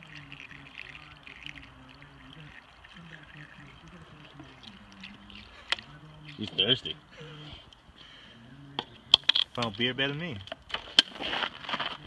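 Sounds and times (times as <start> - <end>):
beer pouring through funnel: 0.0 - 7.7.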